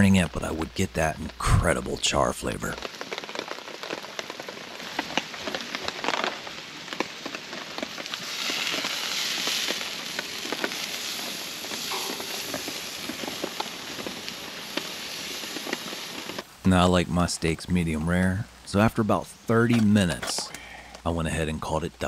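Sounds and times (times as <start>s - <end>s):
campfire crackling and popping: 0.0s - 22.0s
steak sizzling on grill: 2.8s - 17.3s.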